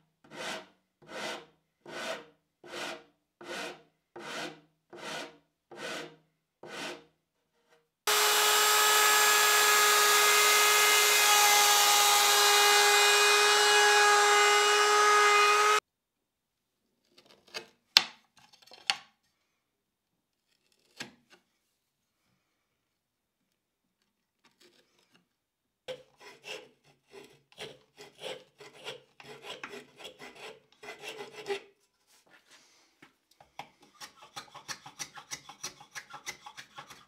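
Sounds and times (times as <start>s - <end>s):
hand file on wood: 0.3s - 7.1s, 25.9s - 32.8s, 33.6s - 37.0s
electric router cutting wood: 8.1s - 15.8s
hand tool clicking on wood: 33.4s - 37.0s.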